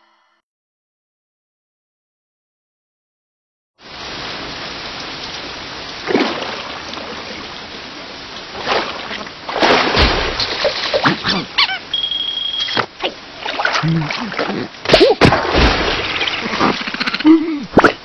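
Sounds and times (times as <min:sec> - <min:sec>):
steady rain falling: 0:03.8 - 0:18.0
splashy drops: 0:06.0 - 0:07.4, 0:08.5 - 0:11.6, 0:12.7 - 0:16.9.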